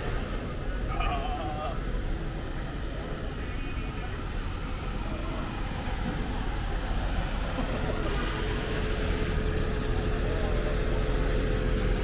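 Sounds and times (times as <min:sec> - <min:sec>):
city street rumble: 0:00.0 - 0:12.0
faint voices: 0:00.0 - 0:12.0.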